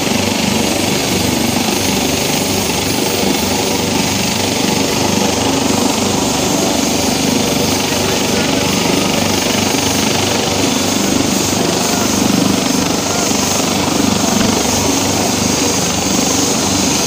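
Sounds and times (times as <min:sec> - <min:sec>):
helicopter blades chopping: 0:00.0 - 0:17.0
helicopter turbine whine: 0:00.0 - 0:17.0.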